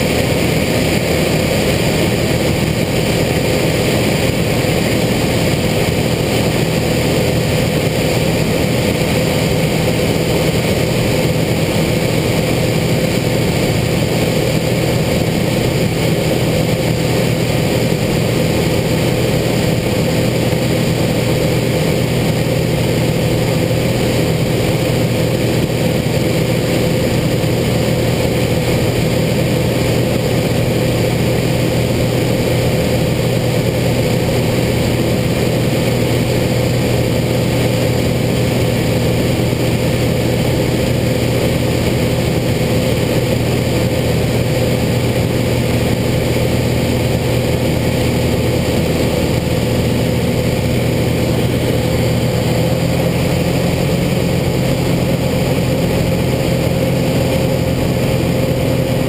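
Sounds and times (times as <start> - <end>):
light aircraft engine droning: 0.0 - 59.0.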